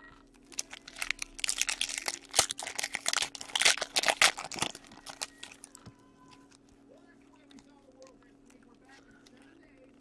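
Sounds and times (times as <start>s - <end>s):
foil wrapper crinkling and tearing: 0.4s - 6.7s.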